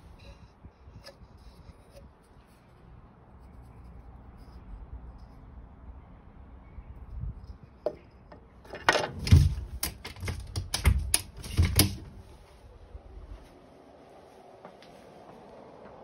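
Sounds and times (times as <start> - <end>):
door clicks and knocks: 8.7 - 12.2.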